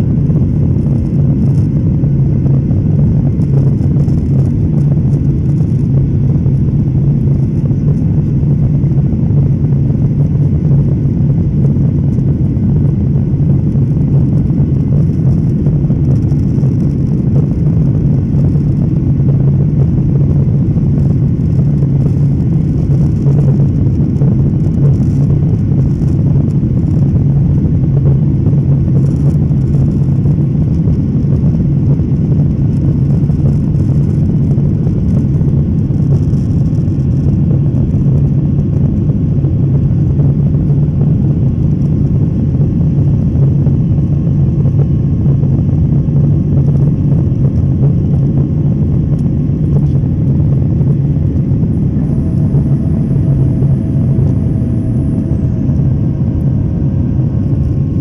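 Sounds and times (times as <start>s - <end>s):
jet engines droning in cabin: 0.0s - 58.0s.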